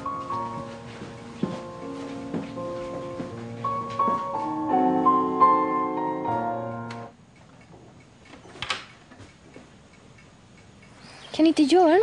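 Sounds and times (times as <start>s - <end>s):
piano music: 0.0s - 7.2s.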